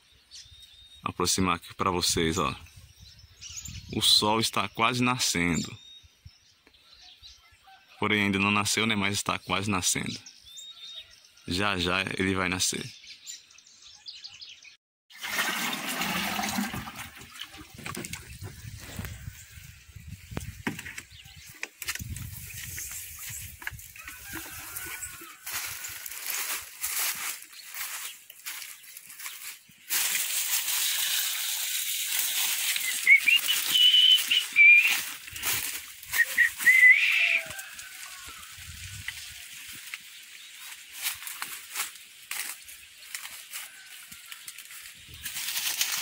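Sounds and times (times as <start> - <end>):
water sloshing and splashing: 15.1 - 18.7
dry grass and leaves rustling: 16.8 - 46.0
wavering whistled notes: 32.8 - 35.1, 36.1 - 37.6.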